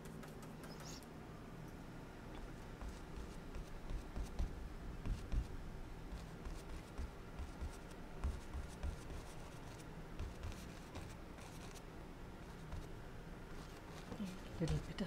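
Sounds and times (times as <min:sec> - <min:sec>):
scratchy brush strokes: 0:00.0 - 0:01.1, 0:02.8 - 0:05.5, 0:06.1 - 0:11.8, 0:13.5 - 0:15.0.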